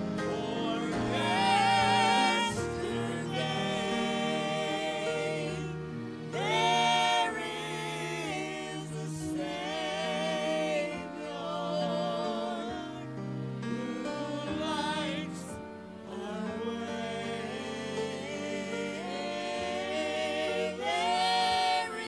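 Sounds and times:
group singing religious song: 0:00.0 - 0:22.0.

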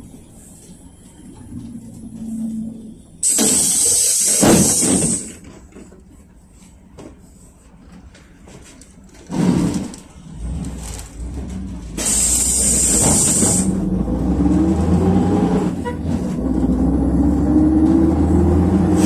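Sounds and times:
air brake hiss: 0:03.2 - 0:05.4, 0:12.0 - 0:13.8
bus engine revving: 0:09.3 - 0:19.0.

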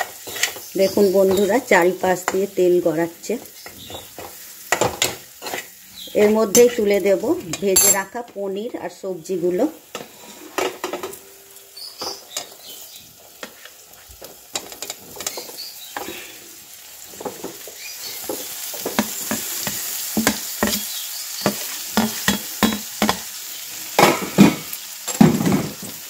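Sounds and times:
frying sizzle: 0:00.0 - 0:26.0
spatula knocking in a pan: 0:17.2 - 0:23.3.

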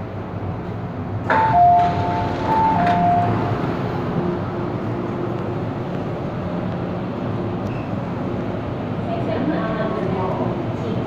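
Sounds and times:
train humming: 0:00.0 - 0:11.0
train doors clunking: 0:00.6 - 0:06.0
two-note door chime: 0:01.3 - 0:03.5.

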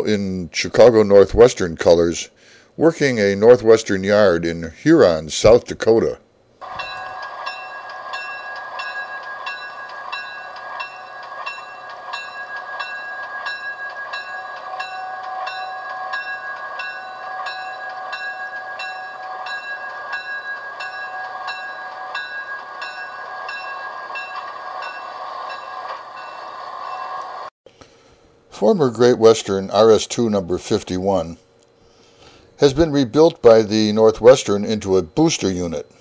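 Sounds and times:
rhythmic rail clicks: 0:06.6 - 0:27.5, 0:28.6 - 0:36.0
train rolling on rails: 0:06.6 - 0:27.5
steady whine: 0:06.6 - 0:36.0.

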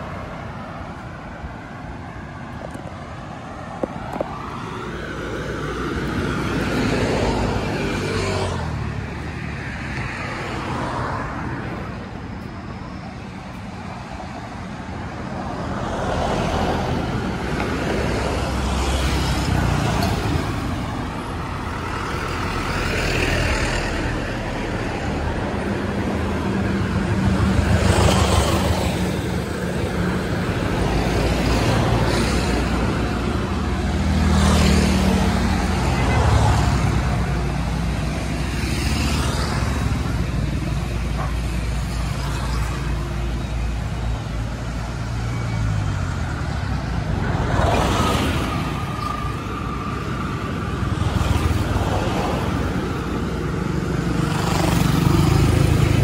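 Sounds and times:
vehicles passing: 0:00.0 - 0:56.0.

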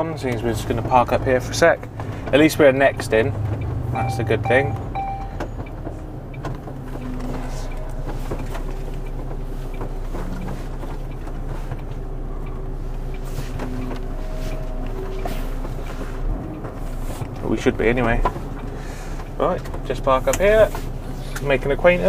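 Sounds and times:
diesel engine low drone: 0:00.0 - 0:22.0.

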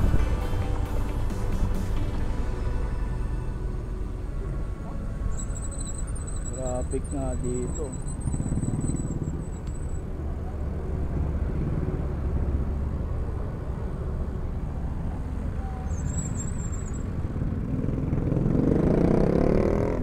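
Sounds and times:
traffic engines running: 0:00.0 - 0:20.0
engine revving: 0:17.1 - 0:20.0.

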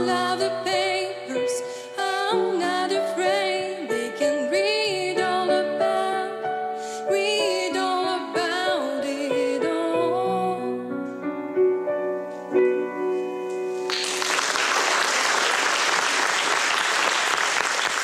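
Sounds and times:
piano chords: 0:00.0 - 0:16.1
audience applause: 0:13.8 - 0:18.0.

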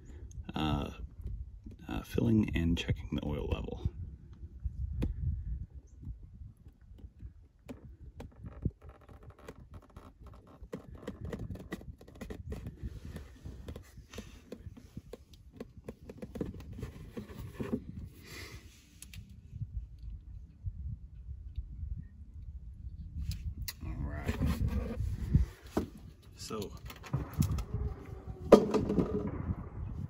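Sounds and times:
plastic bottle clicks and scrapes: 0:06.8 - 0:18.1
low rumble: 0:26.9 - 0:30.0.

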